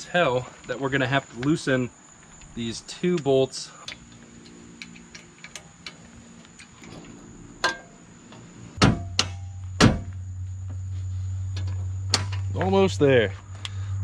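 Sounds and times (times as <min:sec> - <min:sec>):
loud metal knocks: 0:08.8 - 0:10.1.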